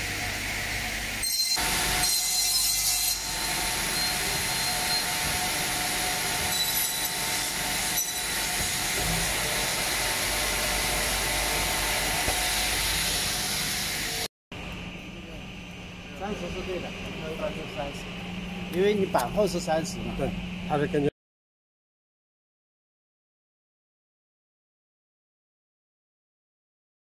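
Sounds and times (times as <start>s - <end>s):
saw machine whirring hiss: 0.0s - 14.3s
saw blade cutting wood: 1.2s - 14.3s.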